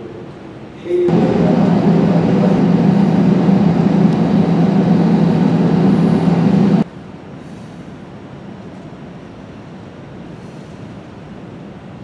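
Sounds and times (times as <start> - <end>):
jet cabin rumble while taxiing: 1.0 - 6.8.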